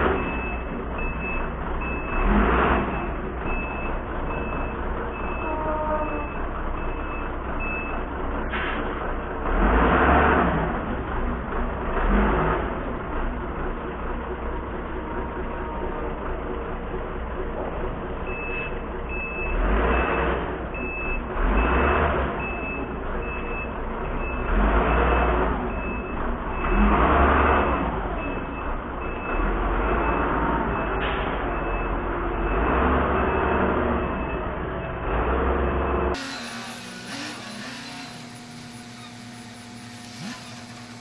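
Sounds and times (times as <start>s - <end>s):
diesel engine revving: 0.0s - 41.0s
reversing alarm beeping: 0.1s - 8.1s, 18.3s - 37.6s.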